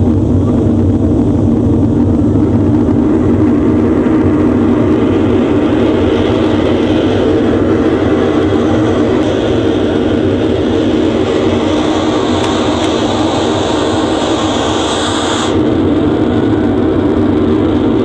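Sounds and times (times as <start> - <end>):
rocket take-off roar: 0.0 - 18.0
hiss: 10.8 - 15.7.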